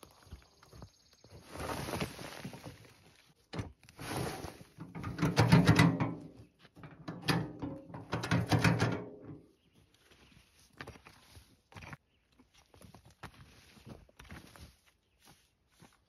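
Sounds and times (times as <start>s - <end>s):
wheelbarrow clunking and rattling: 3.5s - 9.6s.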